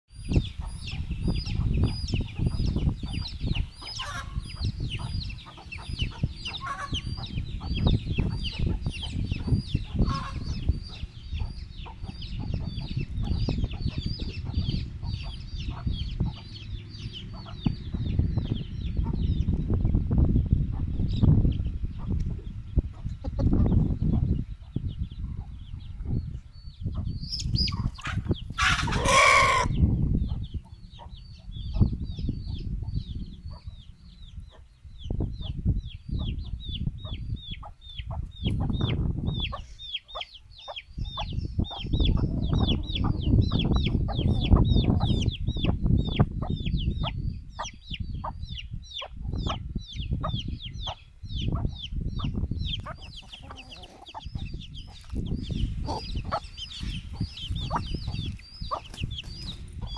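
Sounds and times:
chicks peeping: 0:00.1 - 0:59.9
adult chicken call: 0:06.1 - 0:07.1, 0:27.9 - 0:29.9.

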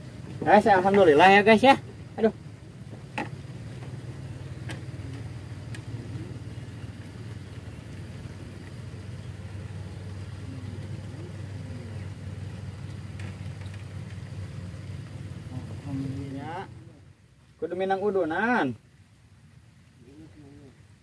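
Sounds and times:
engine humming: 0:00.0 - 0:21.0
faint clicks: 0:04.6 - 0:05.9, 0:12.8 - 0:14.2.

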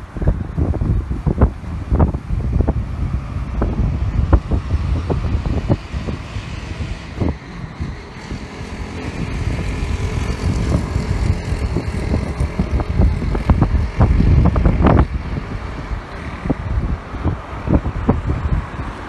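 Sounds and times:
light street traffic: 0:00.0 - 0:19.0
wind buffeting microphone: 0:00.0 - 0:19.0.

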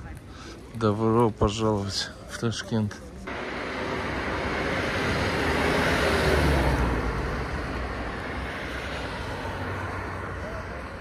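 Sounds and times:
car driving past: 0:03.3 - 0:10.6.

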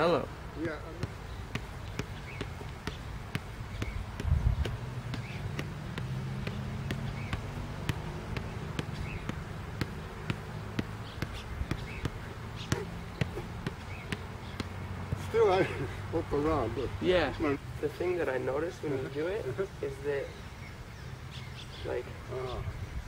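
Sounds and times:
ball kicked light thumps: 0:00.5 - 0:15.8.

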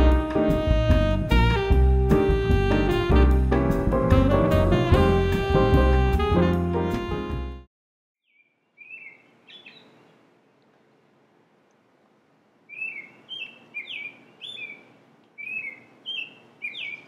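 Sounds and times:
robin singing whistled notes: 0:08.2 - 0:09.9, 0:12.7 - 0:17.0.

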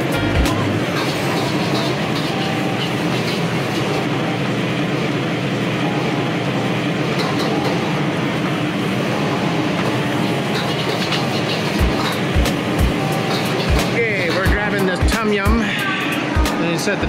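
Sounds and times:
gas wok burner roaring: 0:00.0 - 0:17.0
kitchen exhaust fan: 0:00.0 - 0:17.0
ladle clinking and scraping in wok: 0:00.7 - 0:04.1, 0:10.2 - 0:14.7.

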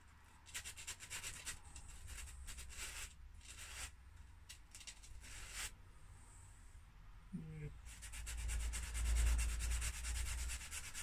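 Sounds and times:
chip pins rubbed on sandpaper: 0:00.5 - 0:03.9, 0:04.8 - 0:05.7, 0:07.9 - 0:11.0.

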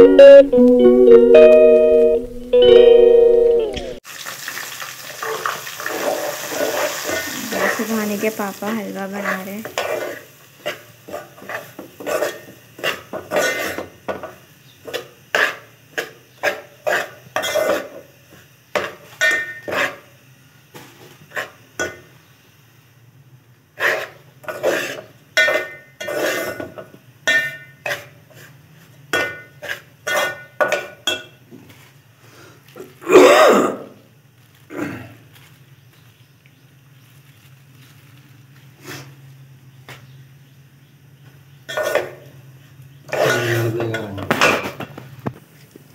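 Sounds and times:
spoon scraping metal pot: 0:08.7 - 0:13.9, 0:23.8 - 0:26.7, 0:29.2 - 0:31.2, 0:43.1 - 0:44.8.

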